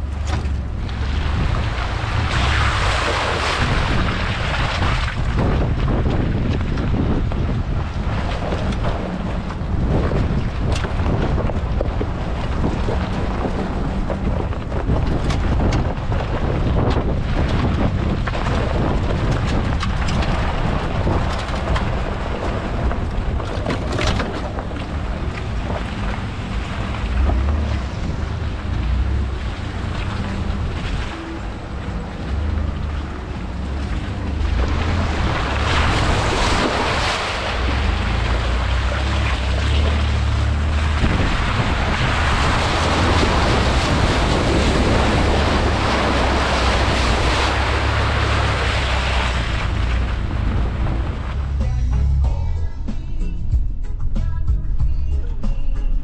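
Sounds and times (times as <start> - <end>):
vehicle engine running: 0.0 - 56.0
wind noise on microphone: 0.0 - 56.0.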